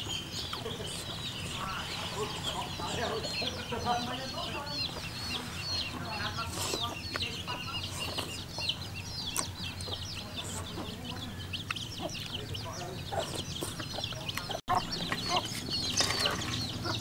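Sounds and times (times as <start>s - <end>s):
chickens clucking and cheeping: 0.0s - 17.0s.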